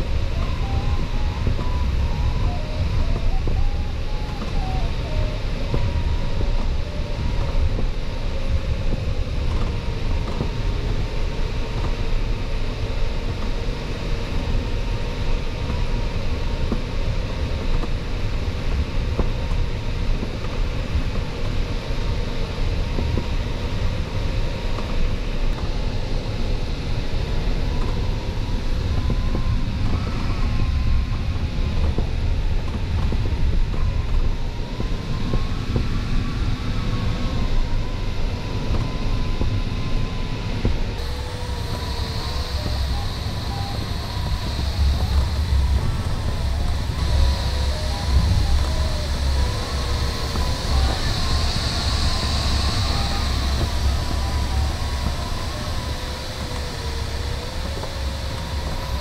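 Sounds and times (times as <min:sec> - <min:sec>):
airflow rushing in cockpit: 0:00.0 - 0:59.0
faint thin drifting tone: 0:41.0 - 0:59.0.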